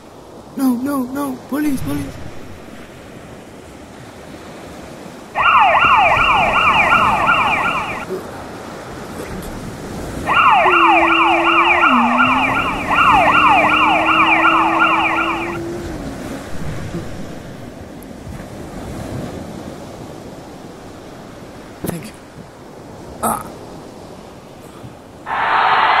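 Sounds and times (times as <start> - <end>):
police siren yelping: 5.4 - 8.1, 10.2 - 16.3, 25.3 - 26.0
low steady tone: 10.3 - 17.3.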